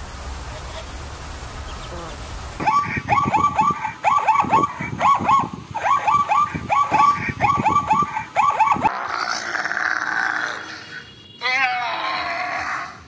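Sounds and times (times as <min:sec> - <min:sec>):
zebra barking: 0:01.9 - 0:08.9.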